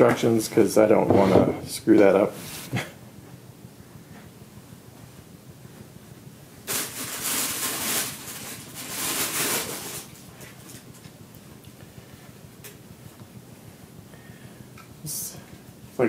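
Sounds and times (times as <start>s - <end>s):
packaging rustling: 6.6s - 10.9s.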